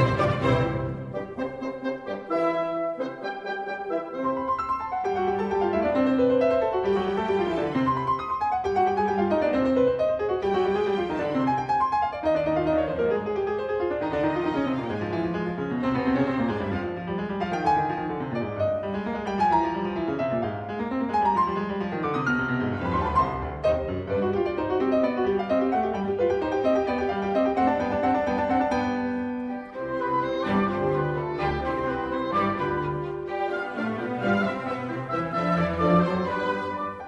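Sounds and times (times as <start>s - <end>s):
classical piano music: 0.0s - 37.0s.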